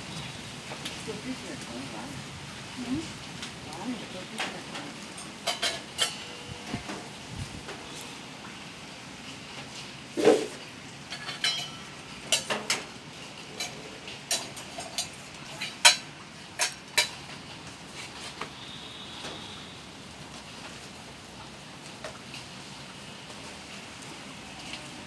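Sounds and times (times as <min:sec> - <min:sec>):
rain hiss: 0:00.0 - 0:25.0.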